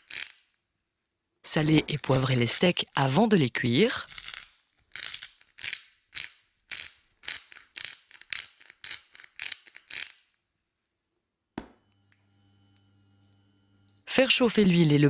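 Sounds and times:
pepper mill grinding: 0.0 - 0.5, 4.0 - 10.4.

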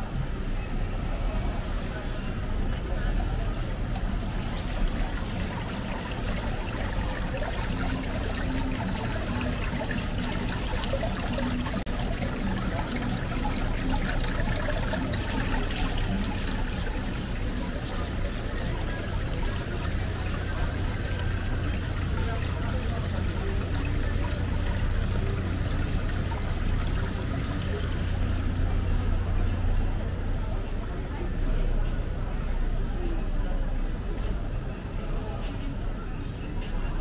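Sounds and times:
trickling runoff: 1.0 - 33.8
small drips: 3.4 - 28.6.

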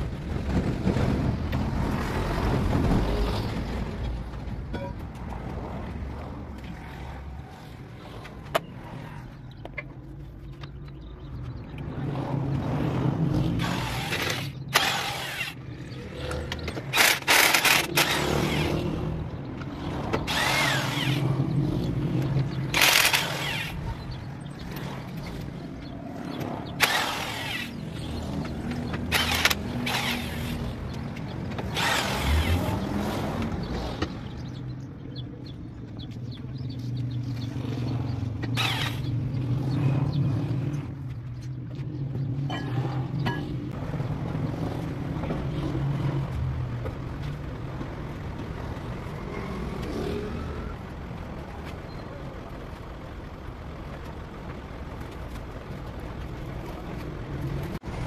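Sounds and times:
low engine hum: 0.0 - 58.0
impact wrench bursts: 13.6 - 15.6, 16.9 - 18.8, 20.2 - 21.3, 22.6 - 24.0, 26.8 - 30.8, 31.6 - 32.8, 38.5 - 39.1.

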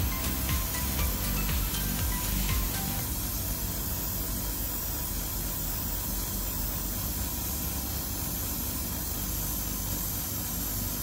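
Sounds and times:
airbrush spraying hiss: 0.0 - 6.7.

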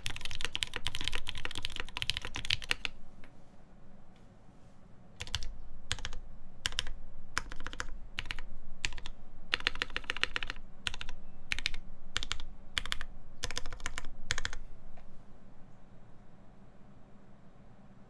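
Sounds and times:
mechanical keyboard typing: 0.0 - 3.0, 5.2 - 14.6.

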